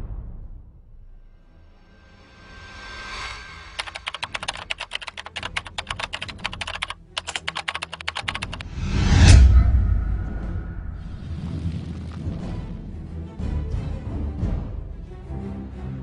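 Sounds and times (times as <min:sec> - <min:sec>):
sharp typing-like clicks: 0:03.8 - 0:08.7
whoosh into deep boom: 0:08.7 - 0:12.7.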